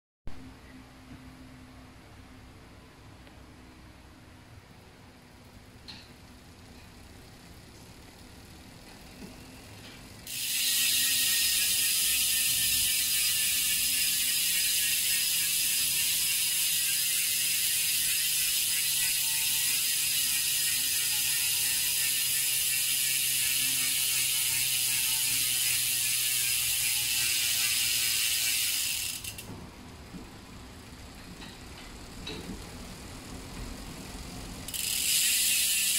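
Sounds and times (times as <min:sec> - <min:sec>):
bicycle hub ratchet buzzing: 0:05.8 - 0:29.5, 0:34.6 - 0:35.9.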